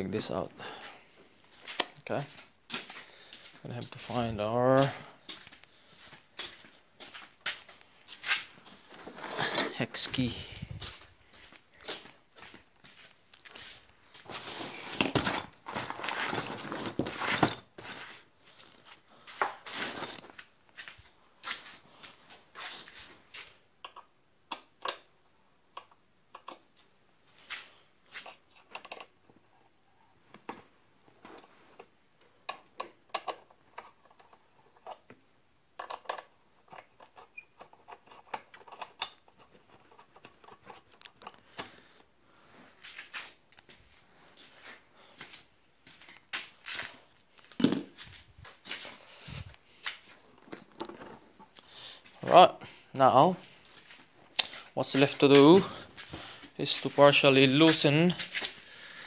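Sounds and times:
bags and gloves rustling: 0:10.4 - 0:18.3.

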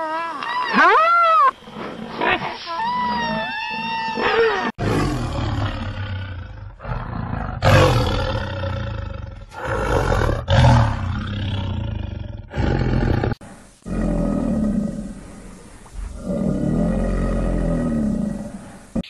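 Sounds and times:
tiger roaring: 0:04.1 - 0:19.0.

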